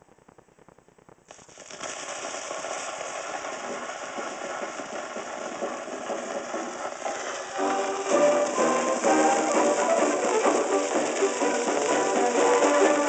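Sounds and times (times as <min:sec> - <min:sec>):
record stylus ticking: 0:00.0 - 0:02.4
record surface hiss and crackle: 0:00.0 - 0:13.0.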